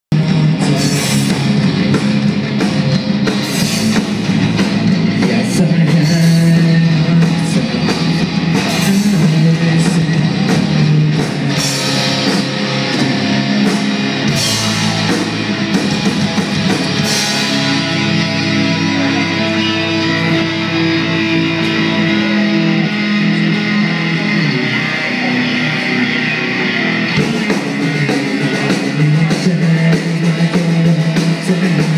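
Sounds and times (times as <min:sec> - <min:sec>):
bass guitar: 0:00.0 - 0:31.9
drum kit: 0:00.1 - 0:31.9
electric guitars: 0:00.1 - 0:31.9.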